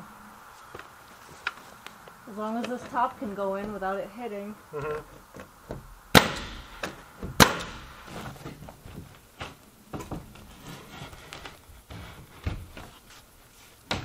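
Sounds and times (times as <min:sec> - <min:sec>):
pneumatic nailer firing: 0:06.1 - 0:08.3.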